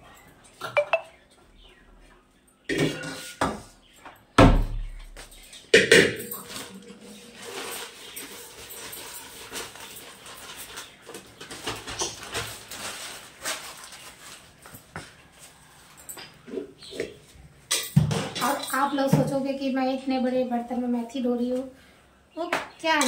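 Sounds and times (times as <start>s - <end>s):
rustling and clattering handling: 5.2s - 19.3s.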